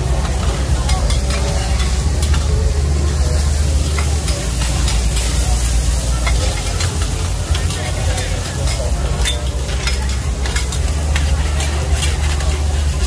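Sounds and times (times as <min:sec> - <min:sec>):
omelettes sizzling on a griddle: 0:00.0 - 0:13.0
metal spatulas scraping pan: 0:03.4 - 0:13.0.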